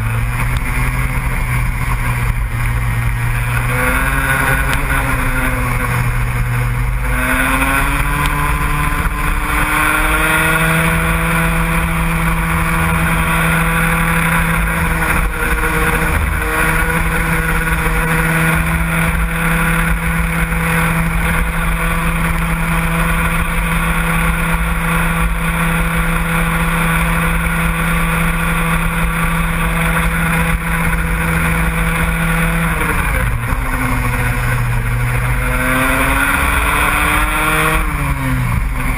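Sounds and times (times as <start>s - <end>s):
racing engine revving: 0.0s - 38.9s.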